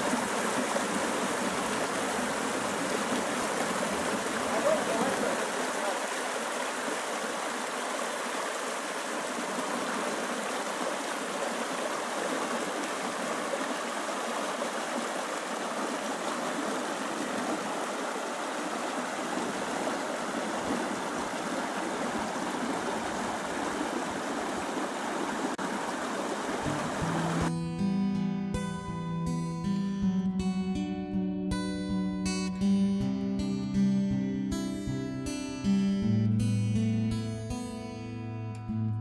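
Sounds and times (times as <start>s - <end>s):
stream rushing over stones: 0.0s - 27.5s.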